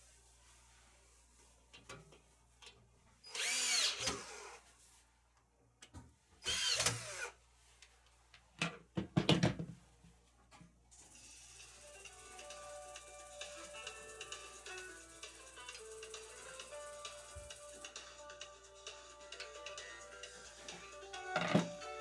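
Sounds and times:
cordless drill driving screws: 0:03.3 - 0:04.6, 0:06.4 - 0:07.4.

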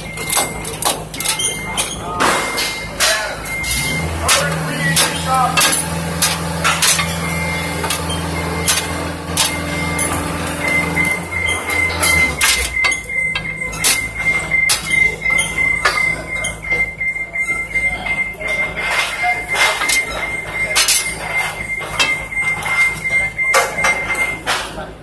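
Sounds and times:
metal clanking: 0:00.0 - 0:16.8
high whine: 0:01.6 - 0:24.5
engine hum: 0:02.8 - 0:14.8.

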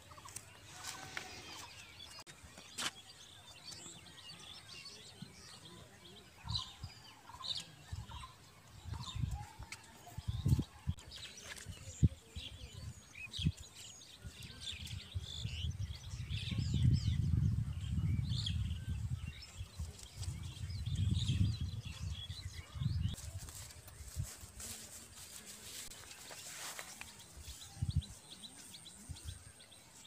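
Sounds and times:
small birds chirping: 0:00.0 - 0:30.0
wind rumble on microphone: 0:08.8 - 0:24.6, 0:27.3 - 0:28.4.

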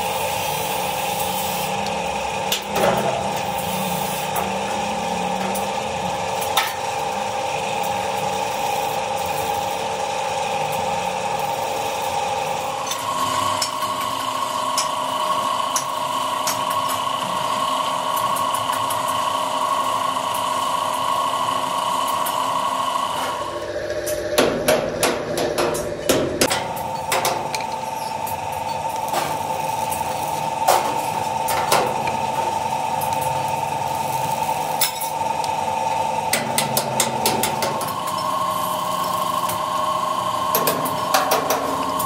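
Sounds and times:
welding arc crackling: 0:00.0 - 0:22.4, 0:25.0 - 0:42.0
welding machine hum: 0:00.0 - 0:42.0.

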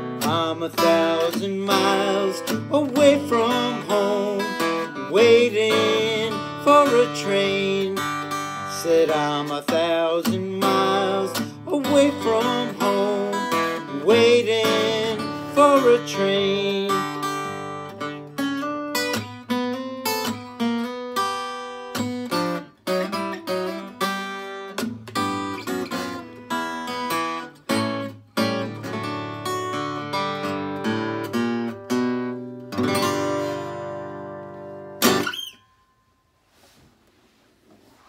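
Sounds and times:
acoustic guitar picking: 0:00.0 - 0:36.2
guitar chord strummed: 0:00.0 - 0:36.2.

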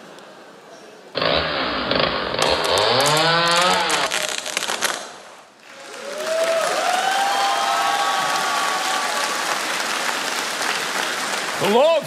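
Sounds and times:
chainsaw revving: 0:01.2 - 0:04.5.

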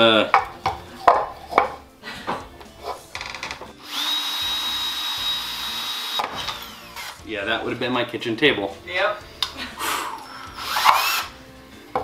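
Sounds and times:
cordless drill whining: 0:03.8 - 0:07.2, 0:10.2 - 0:11.3.

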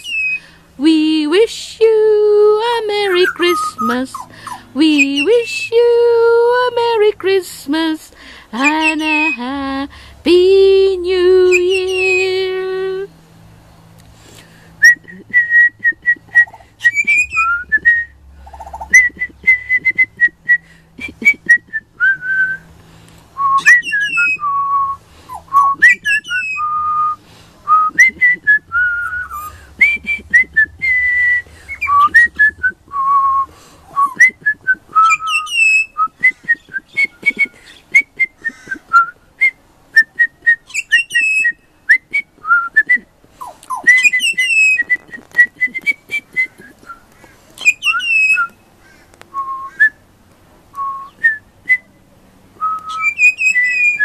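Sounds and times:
bird whistling song: 0:00.0 - 0:00.5, 0:02.9 - 0:05.8, 0:08.6 - 0:09.5, 0:11.4 - 0:12.5, 0:14.8 - 0:22.7, 0:23.4 - 0:48.6, 0:49.3 - 0:50.0, 0:50.7 - 0:51.9, 0:52.6 - 0:54.0.

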